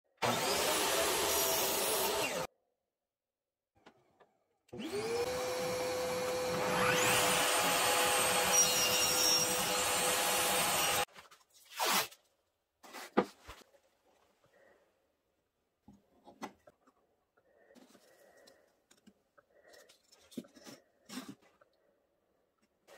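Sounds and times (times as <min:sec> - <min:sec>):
table saw cutting wood: 0:00.2 - 0:02.5, 0:04.8 - 0:11.1.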